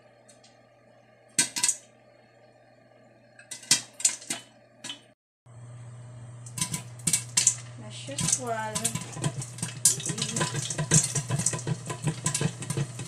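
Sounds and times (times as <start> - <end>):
popcorn popping in a pot: 1.3 - 1.9, 3.4 - 5.1, 6.4 - 13.0
steady low hum: 5.5 - 13.0.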